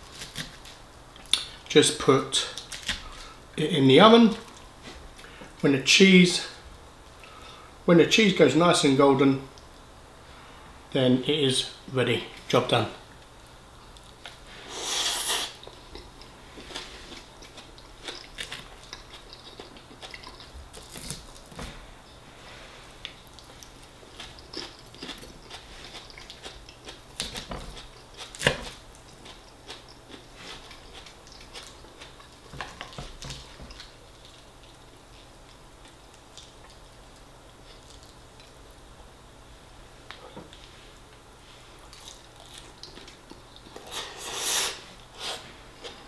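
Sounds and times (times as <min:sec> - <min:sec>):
person biting and chewing: 0:14.0 - 0:21.6, 0:23.0 - 0:34.8.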